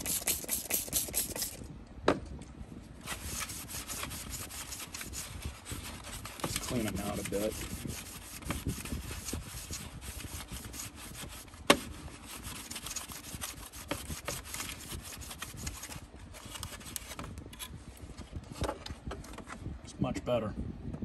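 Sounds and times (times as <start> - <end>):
towel rubbing on plastic: 0.0 - 1.6, 3.1 - 17.0.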